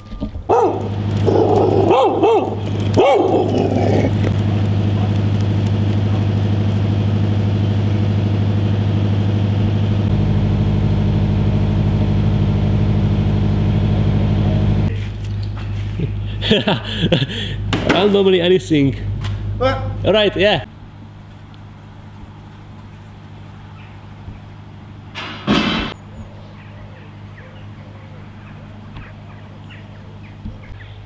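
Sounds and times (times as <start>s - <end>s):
motor humming: 0.0s - 17.7s
dog barking: 0.5s - 4.1s, 4.8s - 5.3s.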